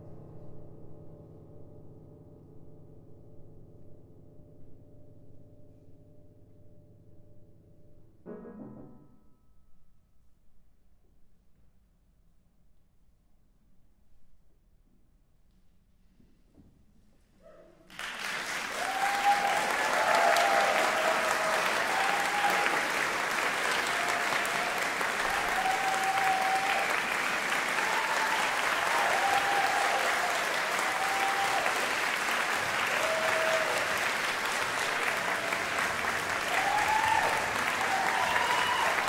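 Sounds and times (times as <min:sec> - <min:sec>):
audience applause: 0:17.9 - 0:39.0.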